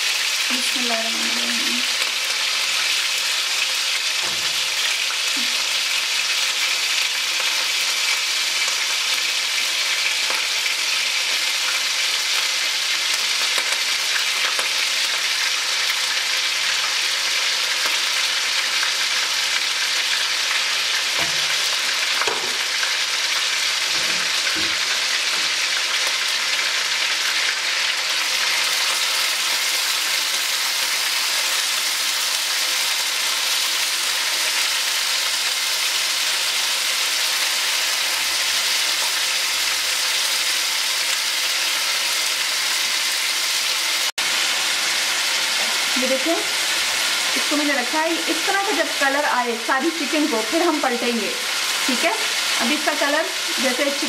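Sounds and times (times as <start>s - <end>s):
chicken frying in hot oil: 0.0s - 54.0s.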